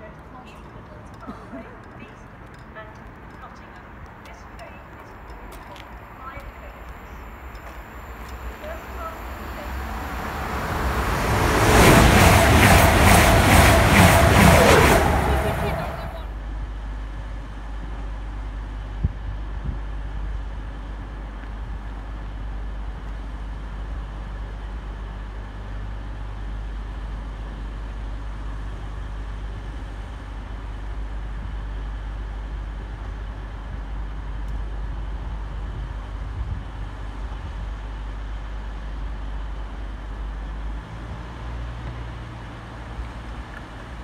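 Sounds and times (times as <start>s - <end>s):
train engines humming: 0.0s - 16.4s.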